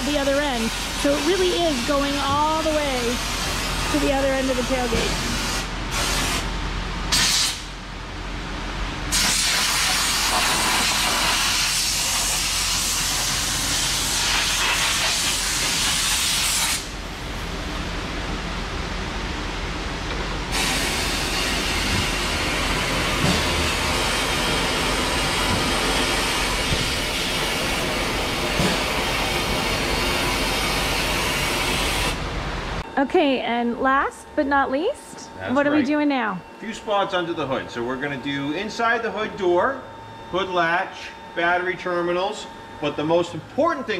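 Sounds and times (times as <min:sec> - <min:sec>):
steady low hum: 0:00.0 - 0:09.3, 0:10.0 - 0:43.9.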